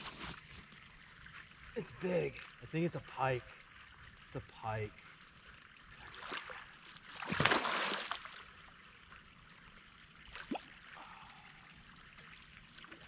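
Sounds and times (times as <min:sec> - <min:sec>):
river water running: 0:00.0 - 0:13.0
fish thrashing and splashing: 0:06.2 - 0:08.4.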